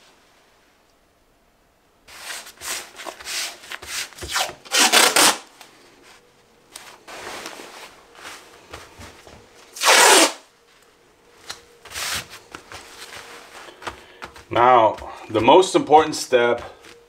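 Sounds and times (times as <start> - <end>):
masking tape scraping on fabric: 2.1 - 5.5, 9.8 - 10.4.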